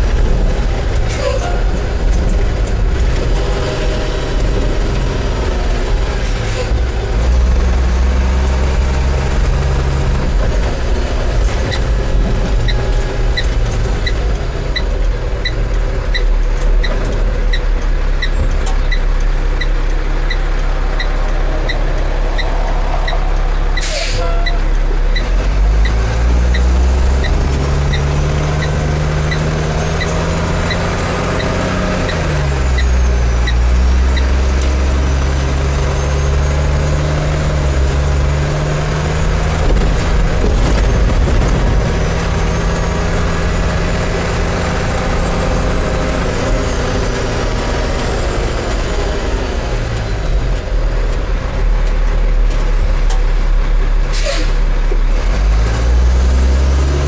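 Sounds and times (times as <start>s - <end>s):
diesel truck engine: 0.0s - 57.0s.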